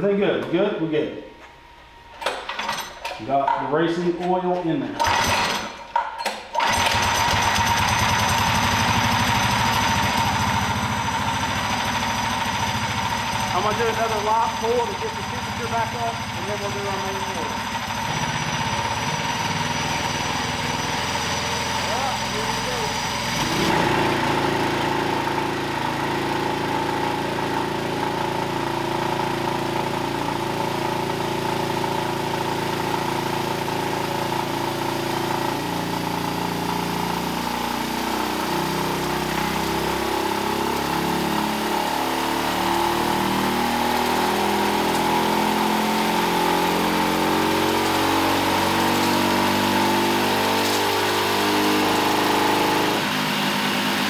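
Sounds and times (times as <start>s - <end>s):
small engine revving: 12.8s - 54.0s.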